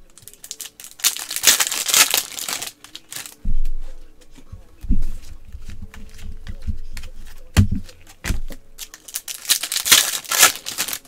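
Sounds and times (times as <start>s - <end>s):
foil wrapper crinkling and tearing: 0.0s - 3.4s, 8.8s - 11.0s
soft handling thumps: 3.4s - 8.7s.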